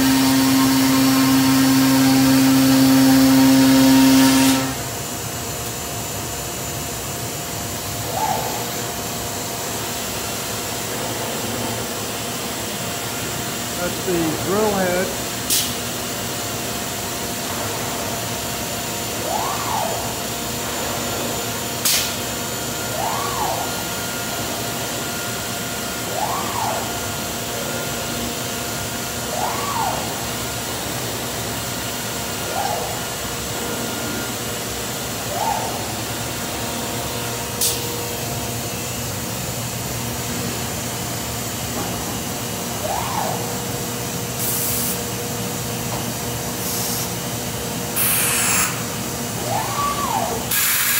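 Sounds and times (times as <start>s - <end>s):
machine hum with whine: 0.0s - 50.9s.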